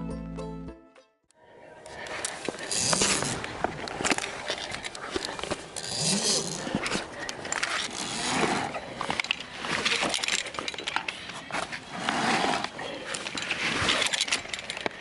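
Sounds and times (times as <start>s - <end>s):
person breathing hard: 1.9s - 9.2s
metal climbing gear clinking: 1.9s - 15.0s.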